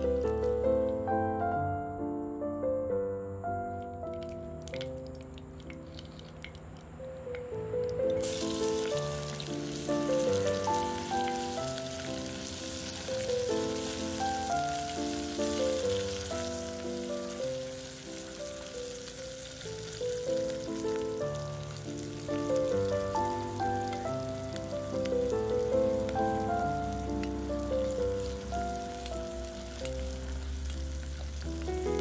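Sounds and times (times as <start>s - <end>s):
gentle instrumental music: 0.0s - 32.0s
onions sizzling in hot oil: 8.2s - 32.0s.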